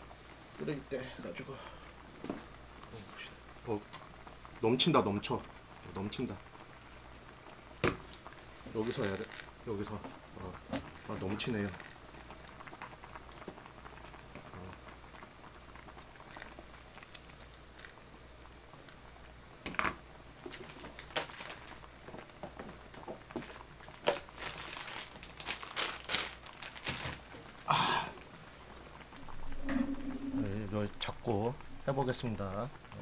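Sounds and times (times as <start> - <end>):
plastic packaging crinkling: 8.7 - 9.6, 10.9 - 12.8, 20.4 - 27.4.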